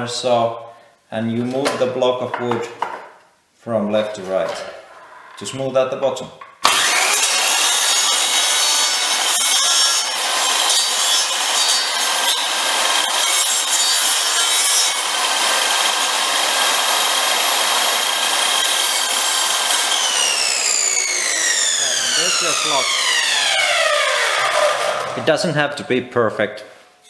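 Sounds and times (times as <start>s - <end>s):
saw blade grinding wood: 6.7s - 25.3s.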